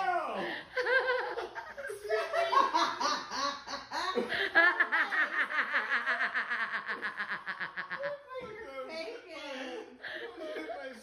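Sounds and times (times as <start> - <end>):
hearty human laughter: 0.7 - 8.4.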